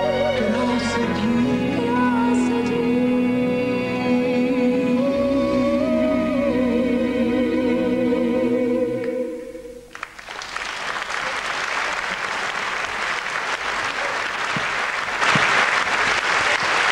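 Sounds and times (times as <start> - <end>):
duet singing pop ballad: 0.0 - 9.4
audience applause: 9.9 - 16.9.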